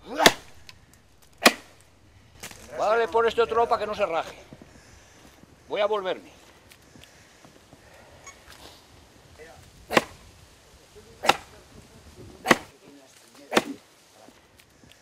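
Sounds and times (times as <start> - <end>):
axe chopping wood: 0.0 - 1.8, 9.9 - 10.2, 11.2 - 11.5, 12.4 - 12.7, 13.4 - 13.8.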